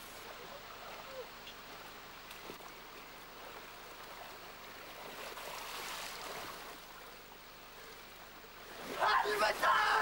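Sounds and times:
stream water rushing: 0.0 - 10.0.

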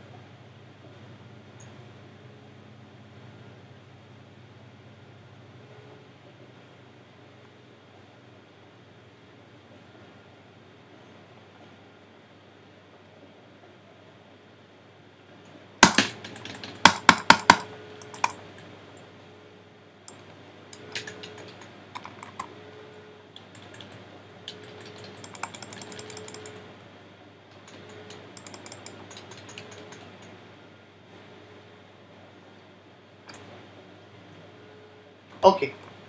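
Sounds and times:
mouse clicks: 15.8 - 18.4, 20.8 - 22.5, 23.4 - 26.6, 27.7 - 30.1
keyboard typing: 15.8 - 18.7, 20.8 - 22.7, 23.4 - 26.7, 27.5 - 30.4.

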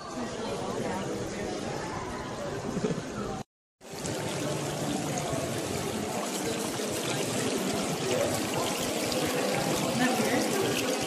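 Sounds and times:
running water rushing: 3.8 - 11.0.

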